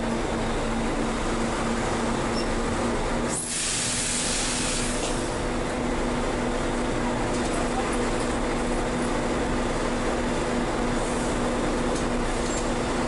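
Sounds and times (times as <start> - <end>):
bus diesel engine running: 0.0 - 13.0
compressed air hiss: 3.3 - 5.2.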